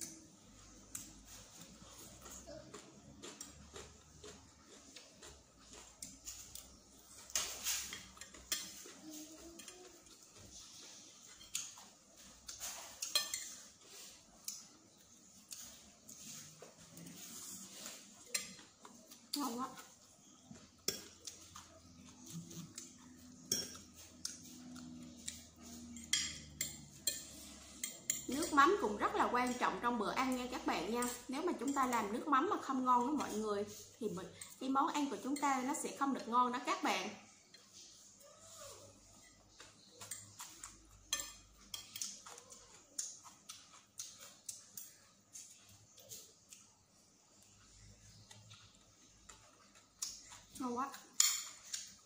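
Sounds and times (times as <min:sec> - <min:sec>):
cutlery clinking on ceramic: 0:07.3 - 0:09.0, 0:11.3 - 0:13.7, 0:20.8 - 0:28.8, 0:39.2 - 0:43.3, 0:51.1 - 0:52.0
fork and spoon clinking on plate: 0:39.2 - 0:42.4.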